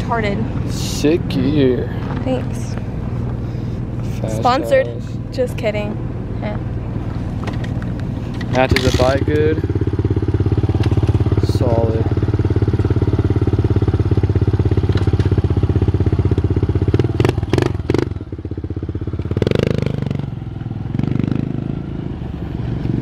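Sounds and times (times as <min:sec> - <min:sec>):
dirt bike engine idling: 0:08.3 - 0:21.9
dirt bike engine revving: 0:16.9 - 0:18.3, 0:19.3 - 0:20.3, 0:20.9 - 0:21.9.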